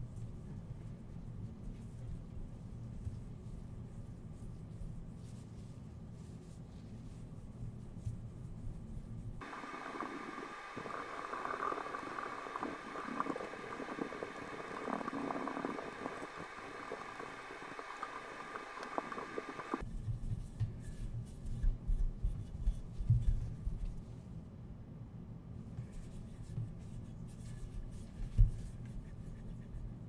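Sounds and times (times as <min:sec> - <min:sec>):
dull low rubbing: 0:09.4 - 0:19.8.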